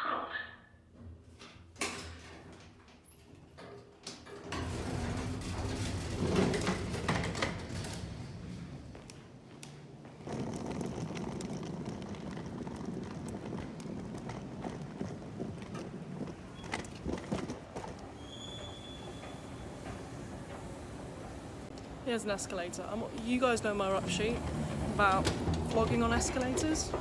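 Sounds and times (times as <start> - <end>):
outdoor street noise: 7.8 - 27.0.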